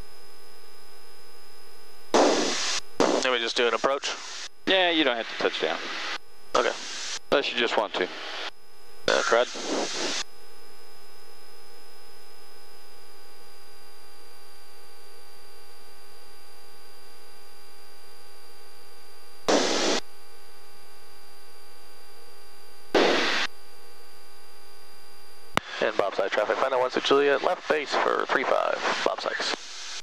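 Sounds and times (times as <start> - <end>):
radio static bursts: 2.2 - 10.3, 19.5 - 20.0, 23.0 - 23.5, 25.6 - 30.0
intercom hiss and hum: 2.2 - 10.4, 17.6 - 20.0, 23.0 - 23.5, 24.6 - 30.0.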